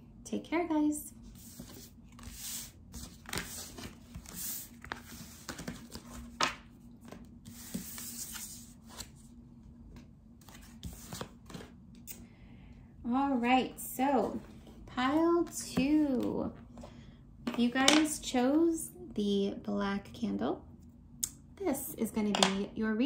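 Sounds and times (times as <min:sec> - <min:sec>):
cards sliding across wooden table: 0:01.3 - 0:06.2, 0:07.0 - 0:09.1.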